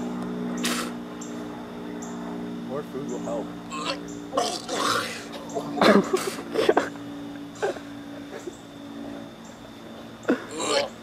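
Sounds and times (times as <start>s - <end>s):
faint steady hum: 0.0s - 11.0s
man spitting: 4.4s - 5.2s.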